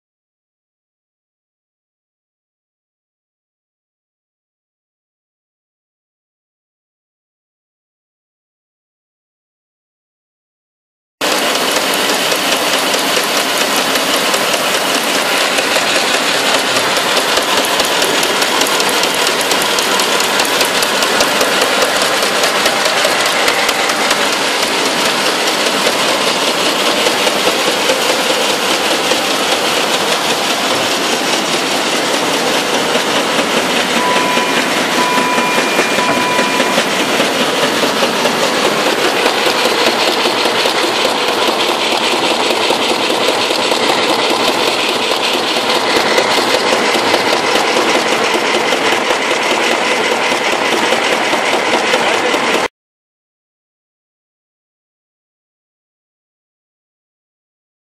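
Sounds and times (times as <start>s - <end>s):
folding machine clattering: 11.3s - 52.6s.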